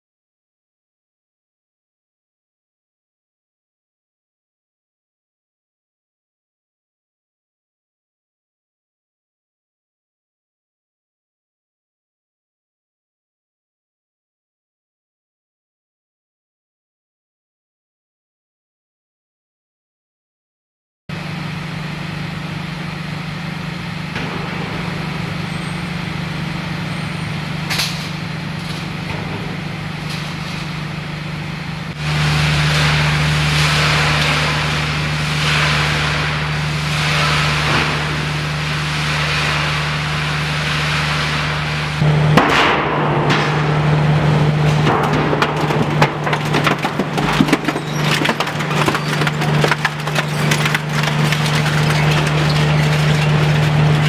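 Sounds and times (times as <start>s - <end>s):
shredder machine hum: 21.1s - 54.0s
rotors crunching scrap metal: 21.3s - 54.0s.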